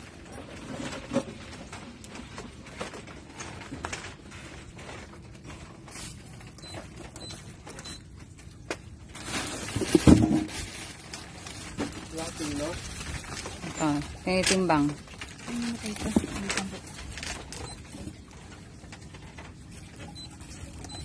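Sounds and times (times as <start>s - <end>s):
plastic bags crinkling: 0.0s - 21.0s
bag thumping on scale: 9.8s - 10.5s.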